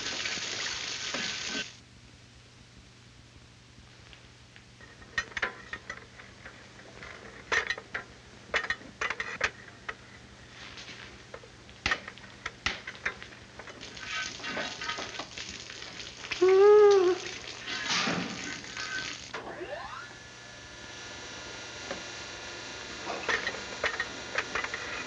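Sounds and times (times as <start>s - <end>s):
steady hiss: 0.0s - 1.8s.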